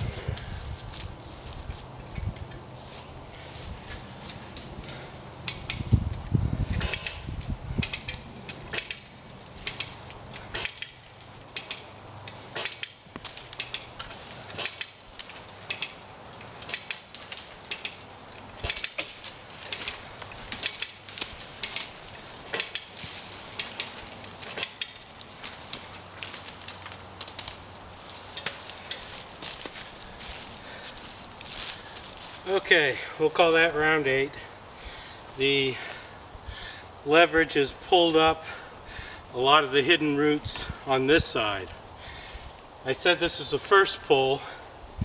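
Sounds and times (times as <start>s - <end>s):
winch ratchet clicking: 7.8s - 11.9s, 13.6s - 13.9s, 15.6s - 16.0s, 17.7s - 18.0s, 18.6s - 20.0s.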